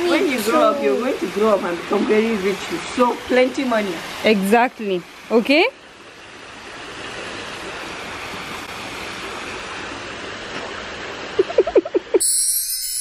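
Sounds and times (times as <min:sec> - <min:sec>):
steady rushing noise outdoors: 0:00.0 - 0:12.2
bright chiming sound effect: 0:12.2 - 0:13.0.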